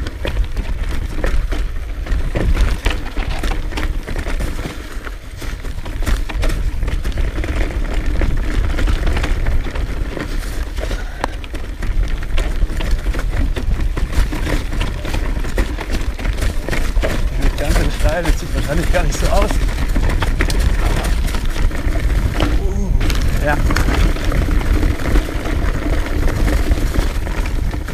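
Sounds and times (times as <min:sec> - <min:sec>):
bike rattling over rough trail: 0:00.0 - 0:27.9
bike tyres crunching: 0:00.0 - 0:27.9
wind rumbling on microphone: 0:00.0 - 0:27.9.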